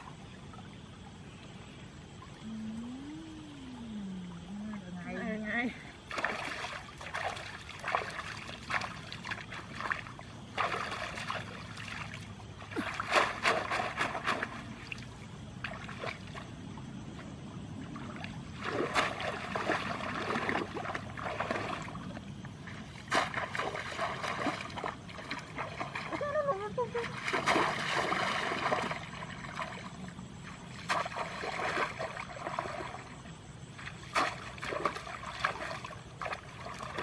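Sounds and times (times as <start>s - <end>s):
water splashing and sloshing: 0.0s - 37.0s.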